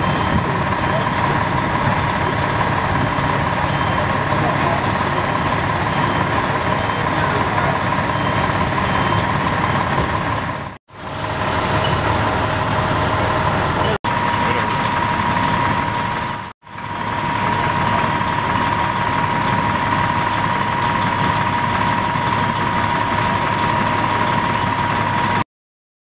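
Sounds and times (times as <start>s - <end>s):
high whine: 0.0s - 16.5s
fire engine running: 0.0s - 25.4s.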